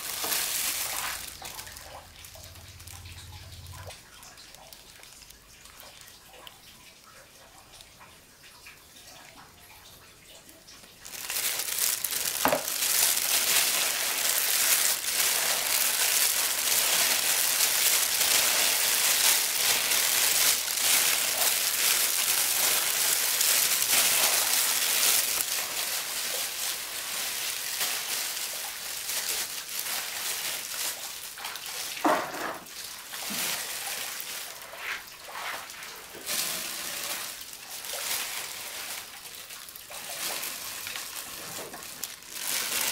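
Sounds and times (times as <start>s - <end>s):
rice rustling in a basket: 0.0s - 3.2s, 11.0s - 42.9s
plastic bags crinkling: 0.0s - 6.1s, 10.9s - 42.9s.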